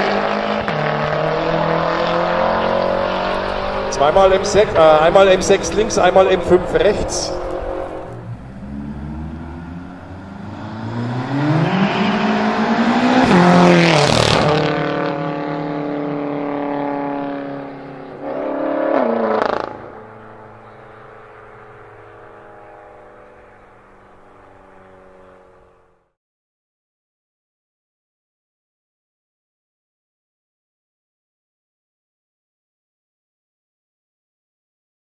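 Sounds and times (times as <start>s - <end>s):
car engine accelerating past: 0.0s - 26.0s.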